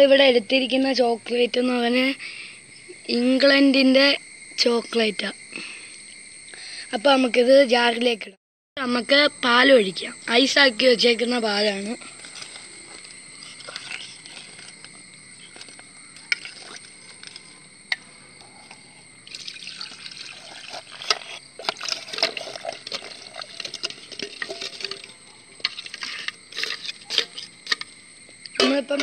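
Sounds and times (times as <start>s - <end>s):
clicks and knocks against jar: 18.6s - 29.0s
milk pouring into a jar: 19.2s - 27.3s.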